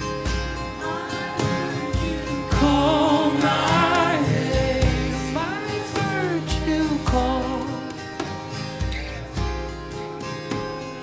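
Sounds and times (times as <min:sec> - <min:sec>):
worship music chords: 0:00.0 - 0:11.0
person singing: 0:00.7 - 0:09.6.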